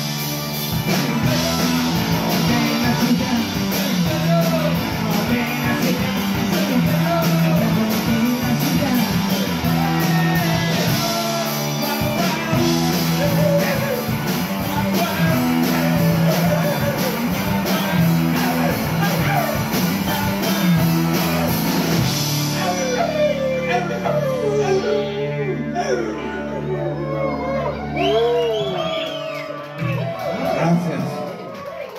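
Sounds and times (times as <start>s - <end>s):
drum kit: 0.0s - 24.6s
electric bass: 0.0s - 31.2s
electric guitar: 0.0s - 31.9s
man singing lead vocal: 0.8s - 29.0s.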